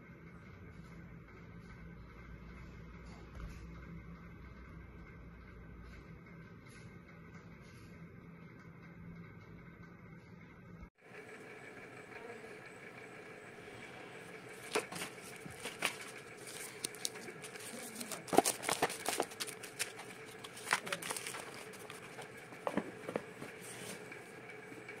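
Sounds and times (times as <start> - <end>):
steady background hum: 0.0 - 25.0
paper rustling: 14.5 - 24.4.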